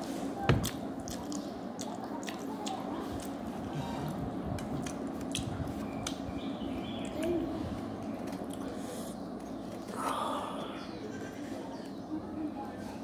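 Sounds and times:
wet chewing and smacking: 0.6 - 6.2.

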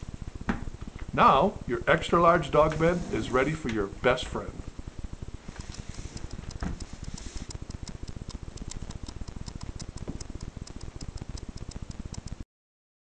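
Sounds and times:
rapid even ticking: 4.8 - 12.4.

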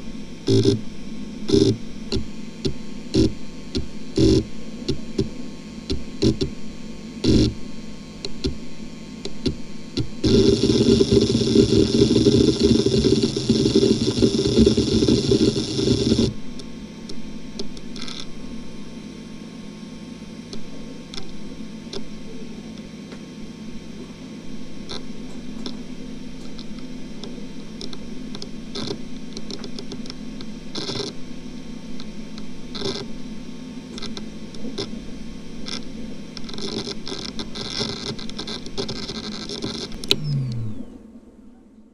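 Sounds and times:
hard drive spindle whine: 0.0 - 41.5
hard drive heads seeking: 0.4 - 6.6, 7.2 - 16.7.

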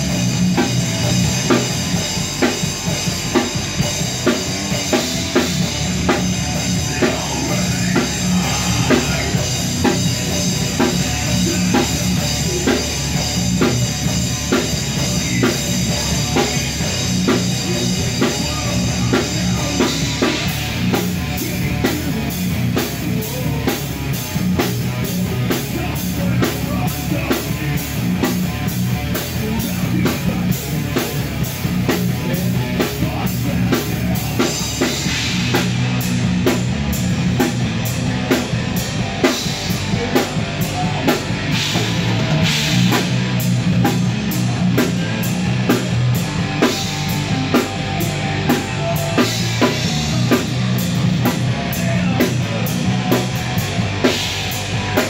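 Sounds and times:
bass guitar: 0.0 - 55.0
drum kit beat: 0.0 - 55.0
electric guitar: 0.0 - 55.0.

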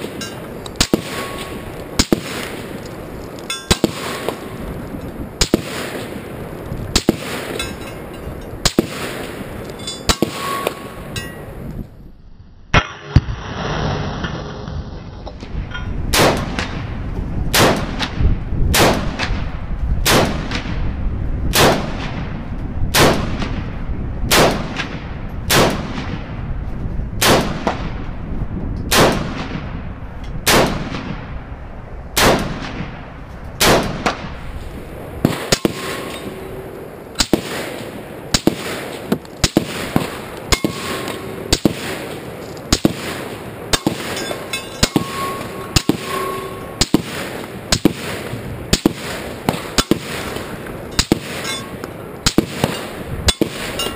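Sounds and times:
rifle shots echoing: 0.0 - 2.8, 3.6 - 4.8, 5.4 - 7.9, 8.6 - 11.2, 16.1 - 16.9, 17.5 - 20.8, 21.5 - 22.3, 22.9 - 23.7, 24.3 - 26.3, 27.2 - 28.0, 28.9 - 29.8, 30.4 - 31.3, 32.2 - 34.4, 35.2 - 53.9.

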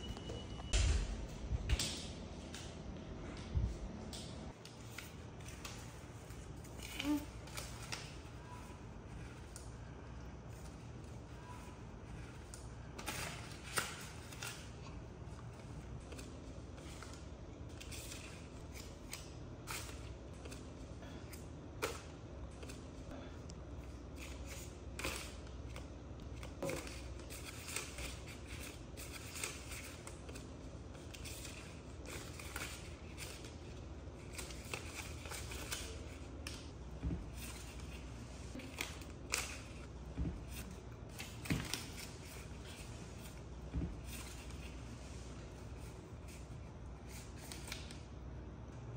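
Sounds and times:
banknotes rustling and crinkling: 4.5 - 23.1, 23.8 - 48.1.

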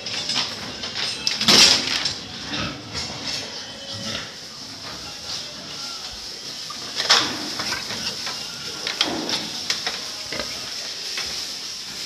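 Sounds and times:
pigs grunting: 2.3 - 4.8.

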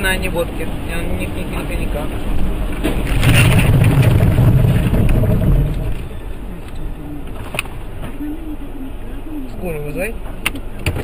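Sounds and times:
loud low rumble: 0.2 - 9.1
car crash knocks: 2.8 - 6.5.

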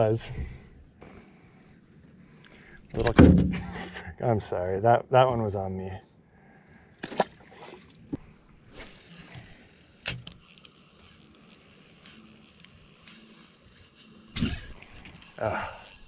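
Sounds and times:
fishing reel clicks: 8.9 - 16.0.

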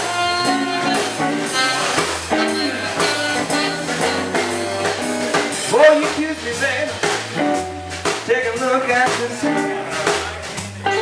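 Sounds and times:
sliding guitar note: 0.0 - 5.6
blues band playing: 0.0 - 11.0.

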